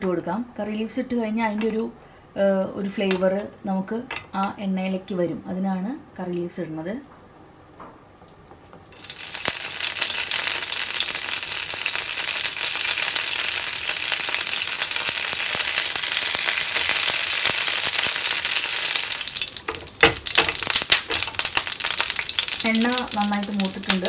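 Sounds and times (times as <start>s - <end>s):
leaves sizzling in hot oil: 8.9s - 24.0s.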